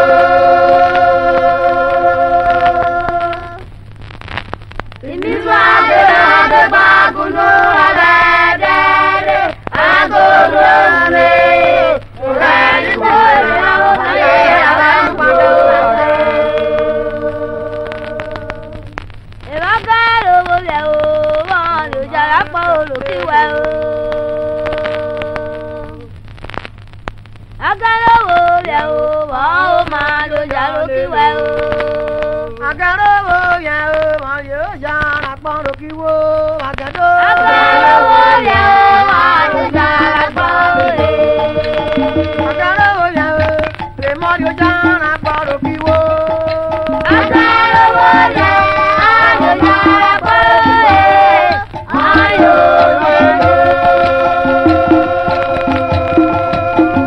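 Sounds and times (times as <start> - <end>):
chorus chanting a song: 0.0 - 3.9, 5.0 - 26.2, 27.6 - 57.0
sharp percussion strikes: 37.2 - 57.0.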